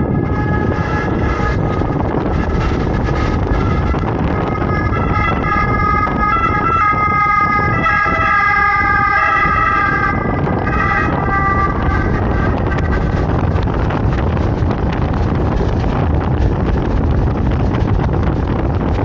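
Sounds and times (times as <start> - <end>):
ambulance siren: 0.0 - 13.6
wind and road noise: 0.0 - 19.0.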